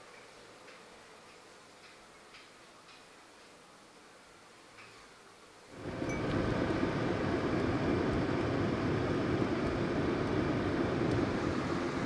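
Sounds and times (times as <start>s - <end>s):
car road and engine noise: 5.7s - 12.0s.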